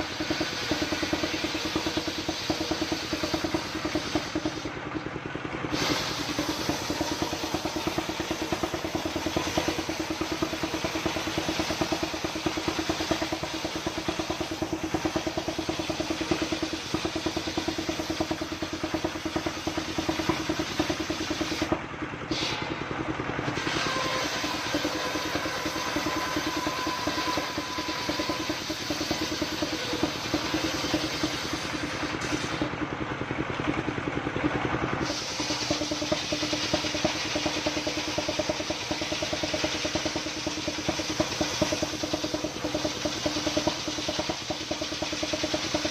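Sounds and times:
circular saw cutting timber: 0:00.0 - 0:04.7, 0:05.7 - 0:22.7, 0:23.5 - 0:32.7
diesel engine running under load: 0:00.0 - 0:45.9
steady whine: 0:00.0 - 0:45.9.

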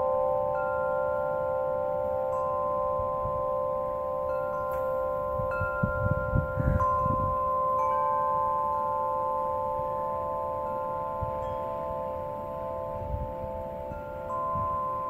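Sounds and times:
wind chime ringing: 0:00.0 - 0:15.0
low wind rumble on microphone: 0:05.1 - 0:08.8, 0:11.1 - 0:15.0.

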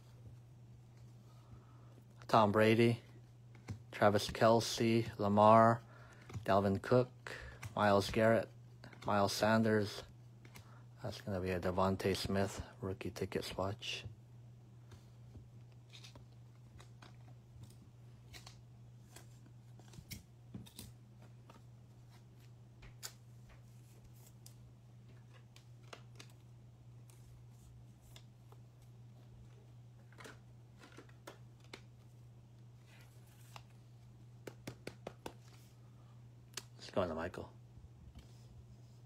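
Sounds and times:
trading cards clicking and tapping: 0:34.4 - 0:35.6.

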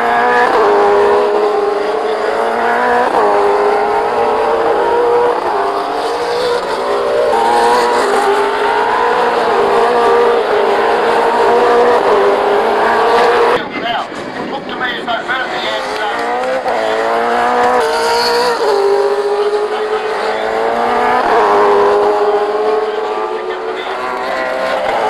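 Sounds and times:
racing car engine accelerating: 0:00.0 - 0:25.0.

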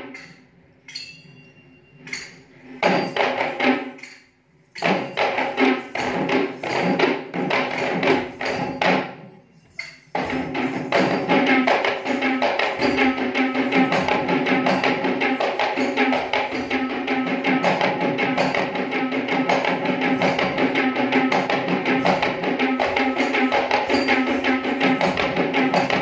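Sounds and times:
hand drums fast rhythm: 0:04.8 - 0:09.1, 0:10.2 - 0:26.0.

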